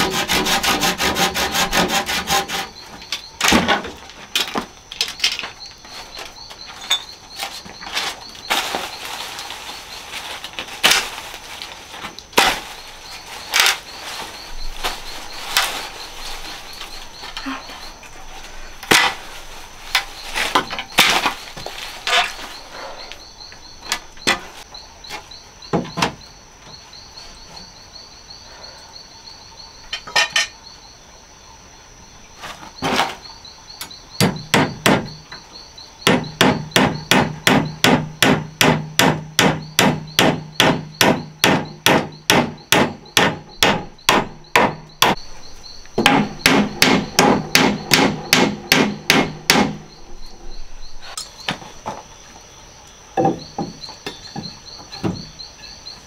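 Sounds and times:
hammer striking wooden post: 34.2 - 35.1, 36.0 - 45.2, 46.0 - 49.8.

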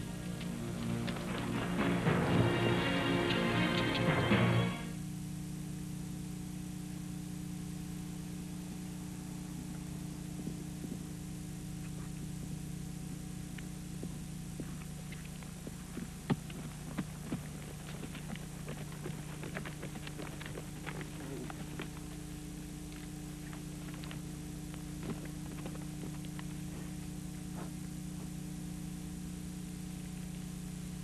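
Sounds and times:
low electrical hum: 0.0 - 31.0
faint clicks and rustles: 13.6 - 28.3.

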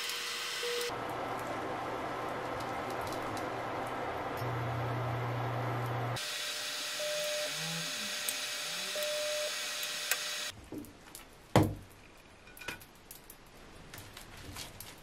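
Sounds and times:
knock on the pan: 11.6 - 11.8.

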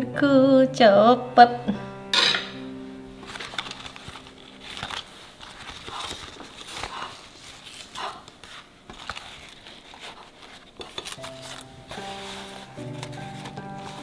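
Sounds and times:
banana leaf crinkling: 3.2 - 14.0.

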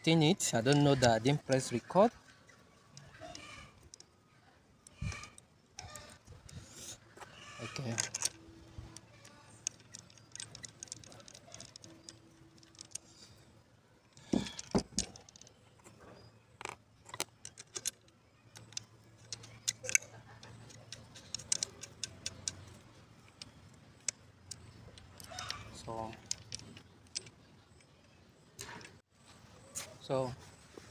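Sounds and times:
screwdriver metallic clicks: 16.6 - 27.9.

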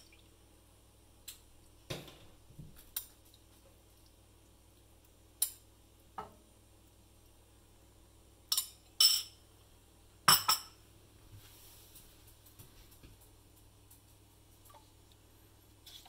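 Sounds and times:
metal spoon clinking porcelain bowl: 8.5 - 9.4.

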